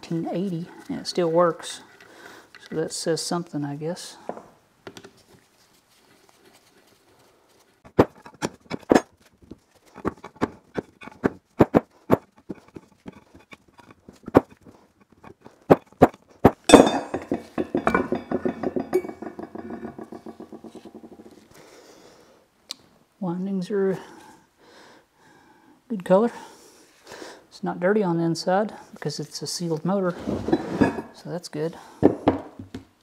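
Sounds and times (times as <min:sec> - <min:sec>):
metal parts clinking and knocking: 0:09.9 - 0:21.4
ringing metal rattle: 0:16.6 - 0:21.4.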